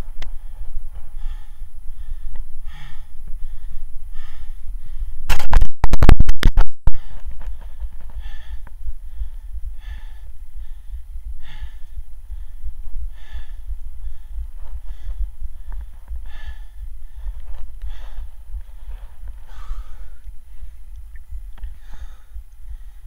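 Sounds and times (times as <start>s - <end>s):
heavy breathing: 0.0s - 5.3s, 6.9s - 23.0s
distorted crackle: 5.2s - 9.0s
low rumble: 6.0s - 23.0s.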